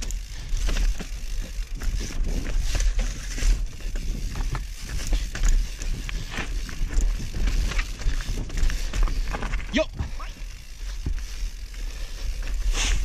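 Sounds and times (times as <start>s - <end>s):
tyres crunching over rock and gravel: 0.0s - 9.8s
bike rattling and clattering: 0.0s - 13.0s
wind buffeting microphone: 0.2s - 11.6s.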